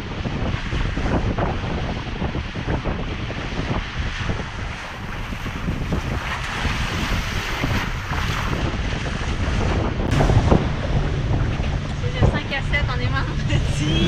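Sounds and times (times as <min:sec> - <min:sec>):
steady low hum: 0:00.0 - 0:14.0
water rushing along boat hull: 0:00.0 - 0:14.0
wind buffeting microphone: 0:00.0 - 0:14.0.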